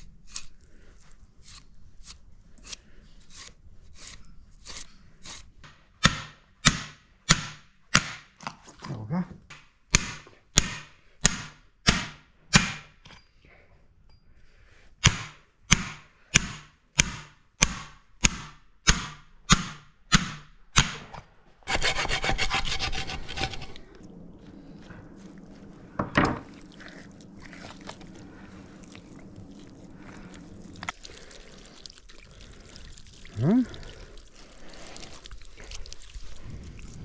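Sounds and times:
low steady hum: 0:20.3 - 0:37.0
hand saw cutting: 0:21.7 - 0:23.8.

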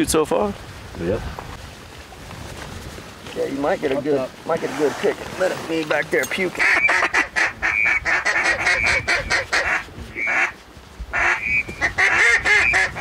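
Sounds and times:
duck calls quacking: 0:06.5 - 0:13.0.

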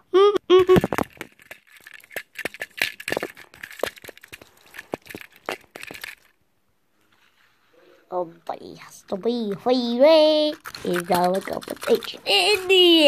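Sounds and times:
person humming notes: 0:00.0 - 0:00.9
handling clicks and rustles: 0:00.8 - 0:06.4, 0:09.1 - 0:13.0.

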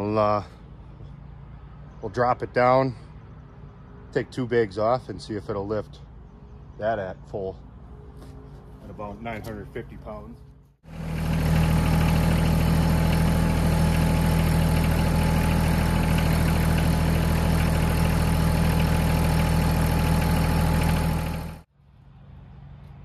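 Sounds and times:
tractor diesel engine running: 0:08.7 - 0:21.7.

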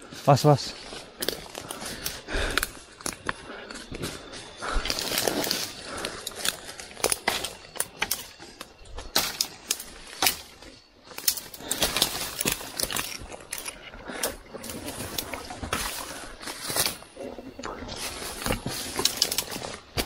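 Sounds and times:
twigs snapping: 0:01.2 - 0:20.0
dry leaves rustling and crackling: 0:04.8 - 0:13.7, 0:14.6 - 0:20.0.

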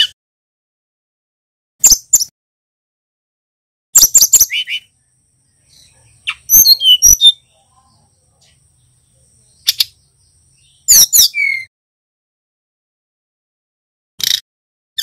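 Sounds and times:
bird chirps and whistled notes: 0:01.8 - 0:02.3, 0:04.0 - 0:08.6, 0:09.4 - 0:11.7.

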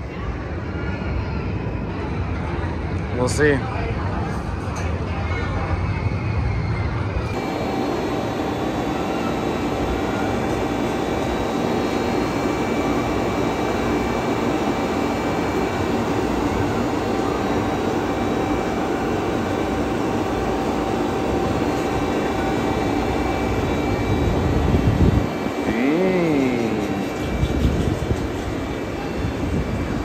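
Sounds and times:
mechanical drone: 0:06.3 - 0:30.0
humming tones: 0:07.4 - 0:30.0.

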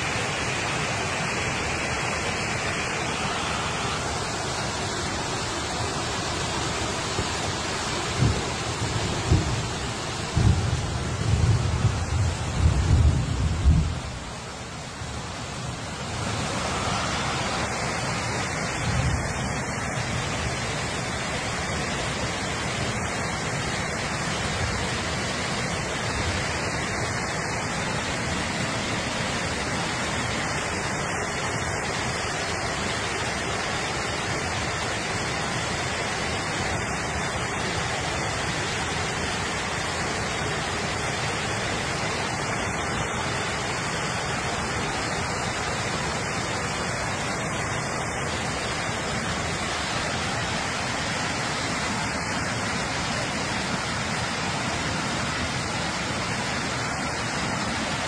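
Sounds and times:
floodwater rushing: 0:00.0 - 0:58.0.

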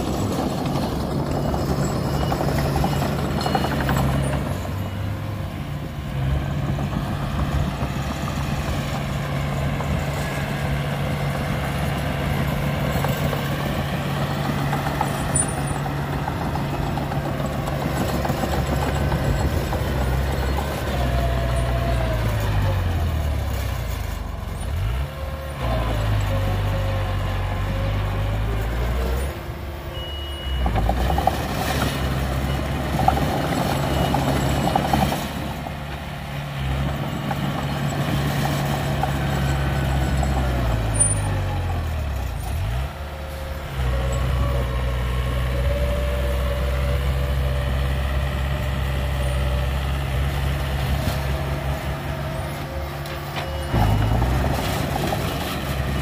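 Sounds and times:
clatter: 0:00.0 - 0:04.9, 0:12.8 - 0:22.0, 0:53.0 - 0:56.0
bulldozer diesel engine under load: 0:00.0 - 0:56.0.

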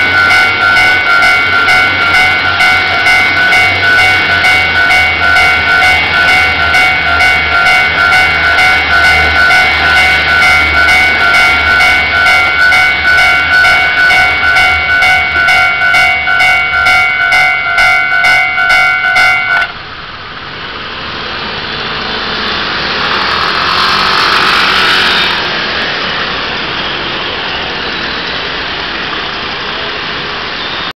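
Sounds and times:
level crossing warning bell: 0:00.0 - 0:19.8
scooters and cars pulling away: 0:20.8 - 0:30.9.

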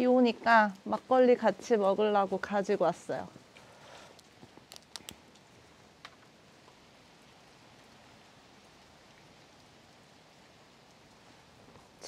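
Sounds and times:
light rain falling: 0:00.0 - 0:12.0
small sharp clicks: 0:04.2 - 0:06.2.

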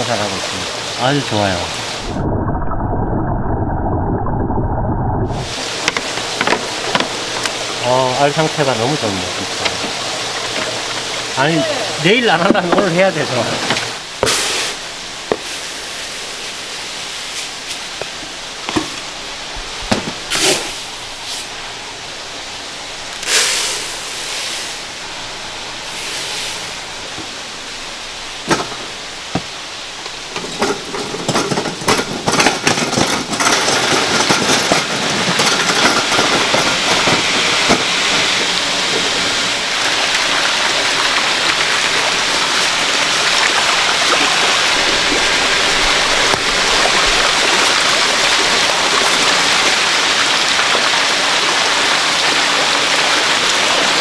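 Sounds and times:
steady hiss: 0:05.3 - 0:54.0
fish splashing at water surface: 0:13.5 - 0:18.2, 0:23.1 - 0:25.0, 0:32.4 - 0:54.0.

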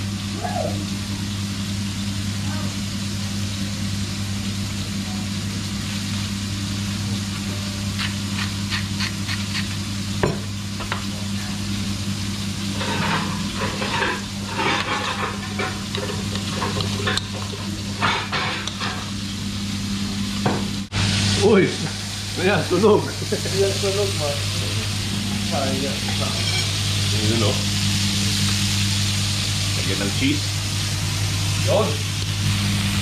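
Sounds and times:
low hum and hiss: 0:00.0 - 0:33.0
spoon scraping a bowl: 0:08.0 - 0:09.8.

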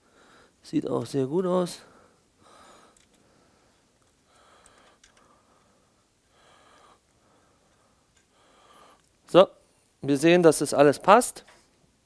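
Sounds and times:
faint short breaths: 0:01.8 - 0:09.1.

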